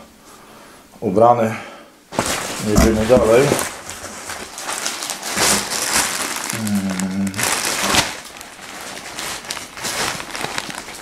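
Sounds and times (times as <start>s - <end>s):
plastic bag crinkling: 2.1s - 11.0s
man humming: 6.5s - 7.6s.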